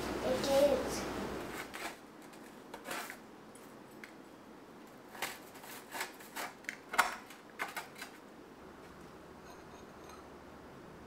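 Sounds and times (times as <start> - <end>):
crunchy pizza crust cutting: 1.5 - 3.2, 5.1 - 8.1.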